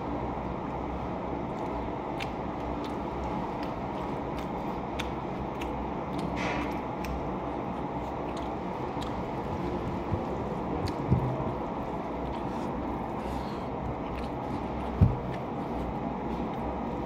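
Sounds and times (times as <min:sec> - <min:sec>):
low background hum: 0:00.0 - 0:17.0
person chewing and crunching food: 0:00.0 - 0:17.0
wet mouth clicks: 0:01.6 - 0:09.4, 0:10.8 - 0:11.5.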